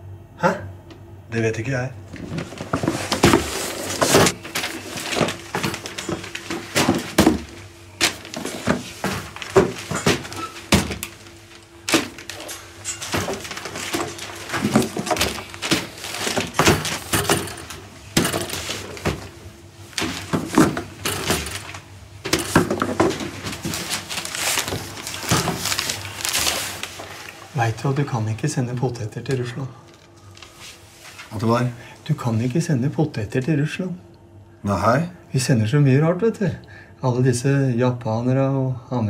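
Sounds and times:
cardboard boxes knocking: 2.3s - 11.2s, 13.1s - 17.6s, 20.0s - 25.8s.

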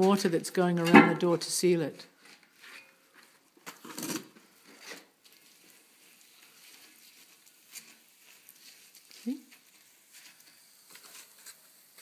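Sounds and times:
wet paste scraping and rustling: 2.3s - 11.8s.

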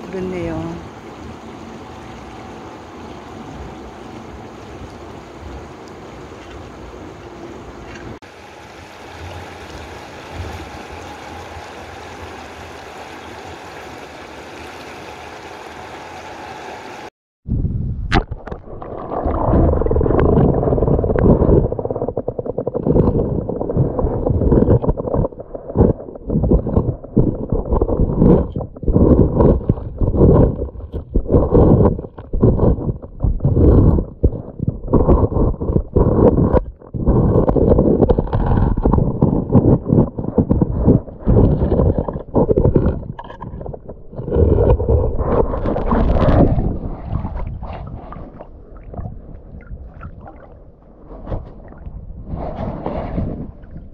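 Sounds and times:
rush of water: 0.0s - 17.1s, 18.1s - 53.9s
underwater stream rumble and gurgling: 0.0s - 53.9s
rapid underwater clicks: 18.1s - 53.9s.

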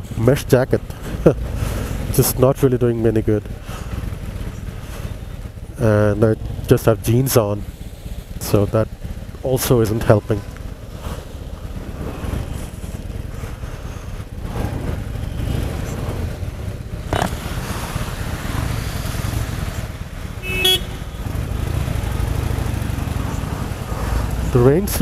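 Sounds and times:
motorcycle engine rumbling: 0.0s - 25.0s
vehicle horn toot: 20.4s - 21.3s.

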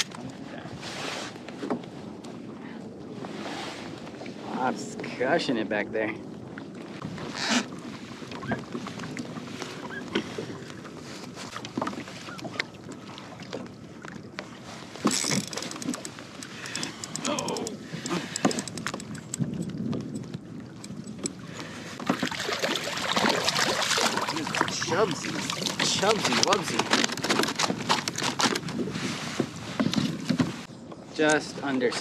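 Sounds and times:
water lapping against hull: 0.0s - 32.0s
fishing reel clicking: 15.2s - 19.7s.

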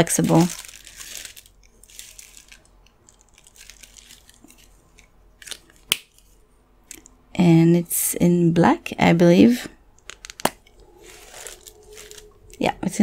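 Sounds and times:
tissue paper rustling and scratching: 0.0s - 2.6s, 3.2s - 4.8s, 11.0s - 12.6s.

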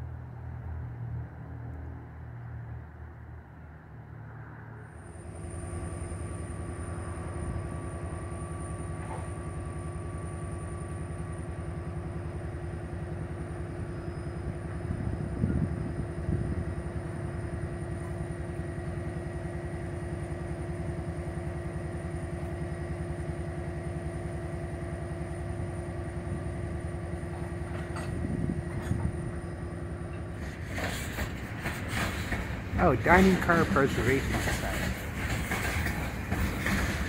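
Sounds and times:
train coaches rolling on track: 4.9s - 37.0s
diesel engine drone: 32.4s - 35.2s.

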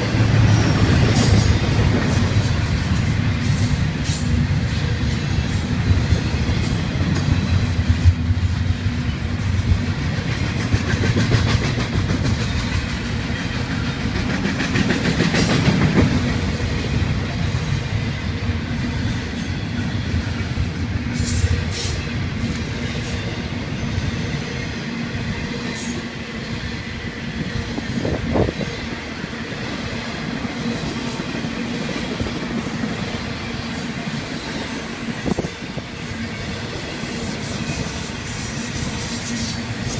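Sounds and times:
freight train wheels rumbling: 0.0s - 39.9s
high wheel squeal: 30.2s - 36.6s.

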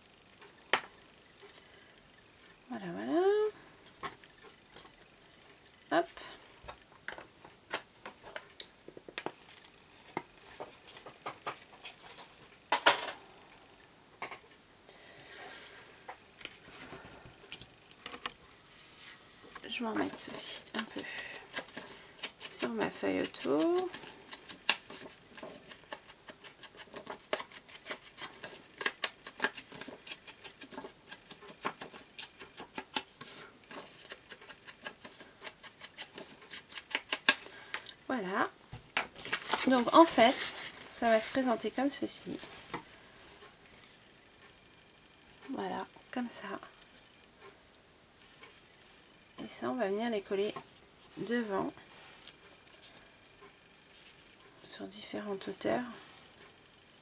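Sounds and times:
items clattering: 38.9s - 41.4s.

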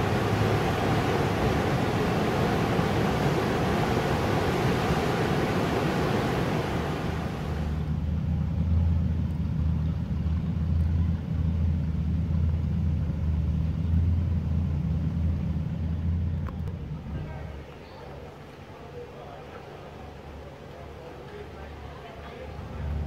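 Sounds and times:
water rushing and churning: 0.0s - 7.9s
low engine hum: 0.0s - 23.0s.

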